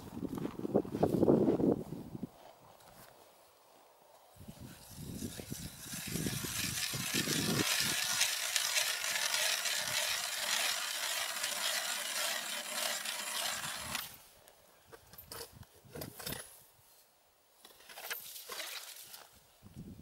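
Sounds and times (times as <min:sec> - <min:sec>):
ice auger scraping ice: 0:04.6 - 0:14.2, 0:17.7 - 0:19.1.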